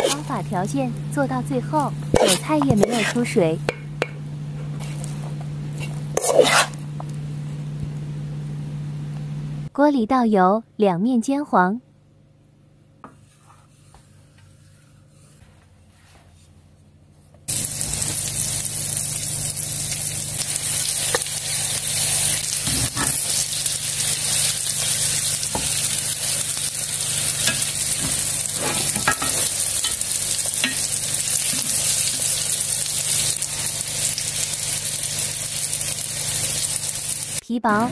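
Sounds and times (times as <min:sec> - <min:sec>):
food sizzling in oil: 0:00.0 - 0:03.9, 0:05.7 - 0:06.8, 0:17.5 - 0:37.9.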